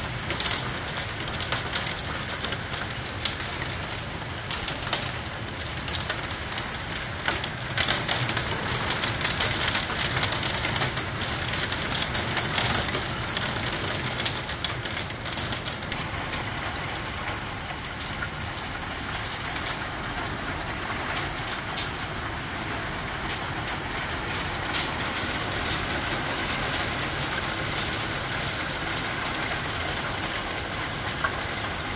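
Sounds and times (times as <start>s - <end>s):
hailstones striking: 0.0s - 16.2s
heavy rain: 0.0s - 31.9s.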